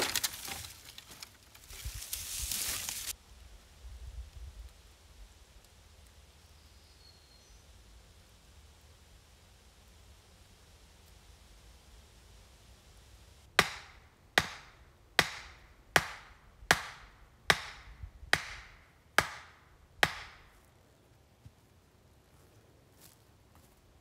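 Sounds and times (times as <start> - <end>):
stake being hammered into ground: 13.5 - 20.6.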